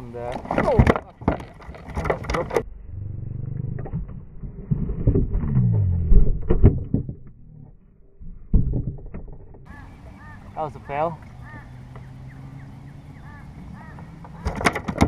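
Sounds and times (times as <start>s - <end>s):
fish thumping against plastic kayak: 0.3s - 2.6s, 14.3s - 15.0s
low falling groan: 2.6s - 14.4s.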